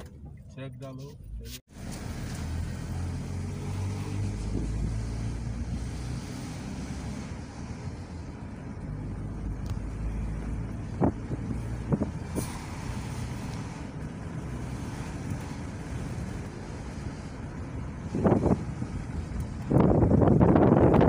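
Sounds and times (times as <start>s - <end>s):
car cabin engine and road noise: 0.0s - 21.0s.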